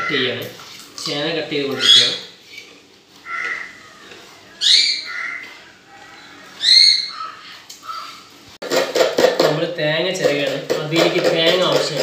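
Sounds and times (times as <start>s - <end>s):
bird calling: 1.7s - 2.4s, 3.1s - 8.4s.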